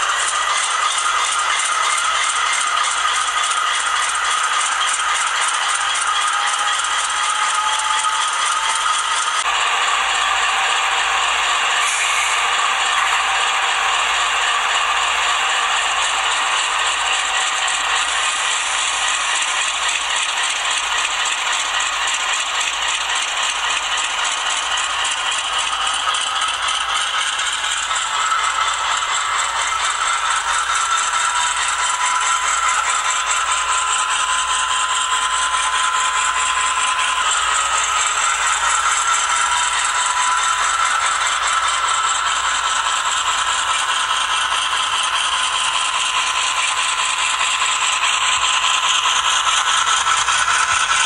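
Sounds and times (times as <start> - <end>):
steady whine: 22.7 - 51.0.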